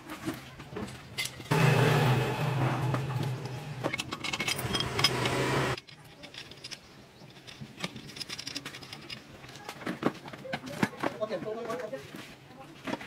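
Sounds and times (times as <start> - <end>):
steady low hum: 1.5 - 5.8
metal parts clinking: 2.9 - 9.6.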